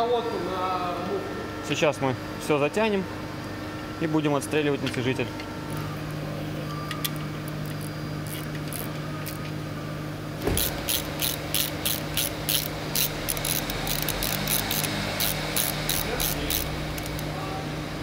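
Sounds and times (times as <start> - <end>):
low workshop hum: 0.0 - 18.0
hand ratchet clicking: 10.6 - 17.3.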